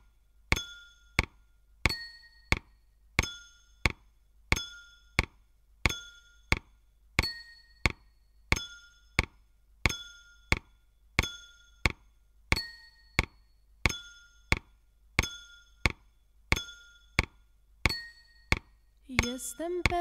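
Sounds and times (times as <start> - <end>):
spoon striking ringing glasses: 1.9 - 2.6, 7.2 - 9.2, 9.9 - 17.3, 17.9 - 20.0.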